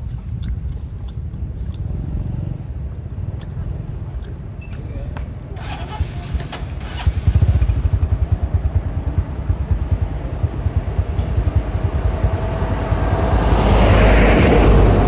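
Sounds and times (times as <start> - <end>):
vehicle driving past: 1.7 - 4.0, 5.5 - 15.0
low fluttering rumble: 5.3 - 15.0.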